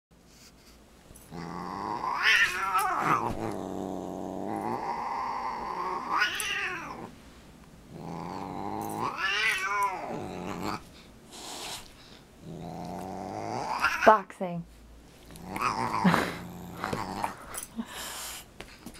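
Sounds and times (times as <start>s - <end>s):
cat growling and yowling: 1.3s - 7.1s, 7.9s - 10.8s, 12.4s - 14.1s, 15.4s - 17.4s.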